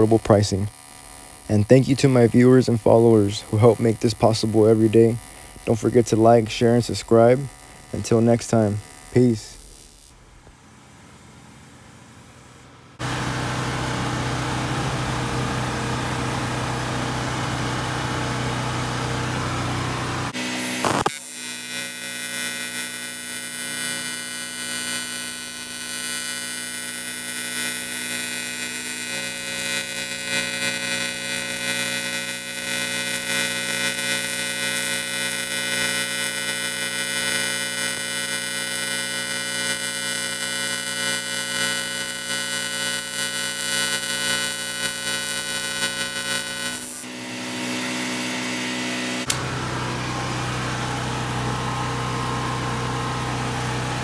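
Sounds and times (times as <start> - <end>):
welding arc buzz: 0.0 - 10.5, 13.0 - 54.0
generator engine running: 13.0 - 20.6, 47.0 - 54.0.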